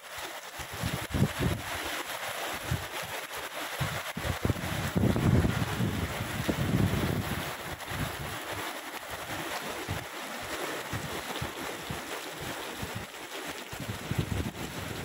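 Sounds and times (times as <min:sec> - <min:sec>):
wind buffeting microphone: 0:00.6 - 0:01.8, 0:02.6 - 0:02.9, 0:03.8 - 0:08.6, 0:09.2 - 0:10.1, 0:10.8 - 0:13.1, 0:13.7 - 0:15.0.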